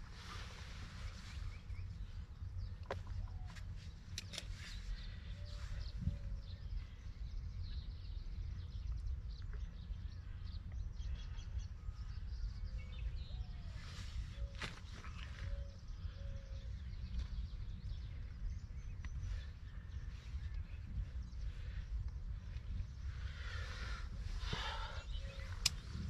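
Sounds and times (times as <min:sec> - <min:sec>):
small birds chirping: 0:00.0 - 0:26.0
steady low rumble: 0:00.0 - 0:26.0
sharp clicks: 0:04.1 - 0:04.5, 0:25.5 - 0:25.9.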